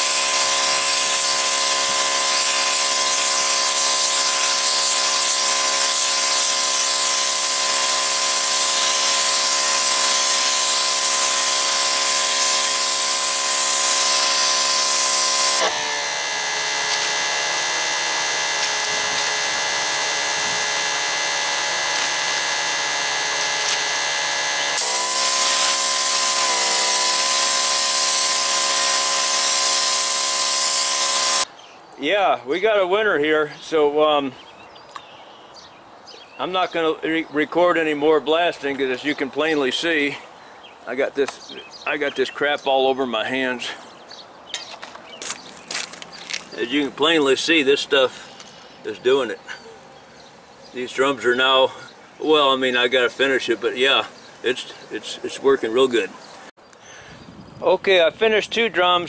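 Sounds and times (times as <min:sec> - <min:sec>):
machine hum: 0:00.0 - 0:31.5
pressure washer spray hiss: 0:24.8 - 0:31.5.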